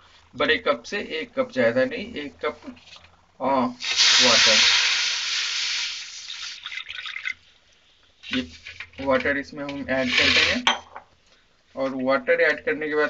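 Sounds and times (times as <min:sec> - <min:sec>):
water sizzling in hot wok: 0:03.8 - 0:06.9.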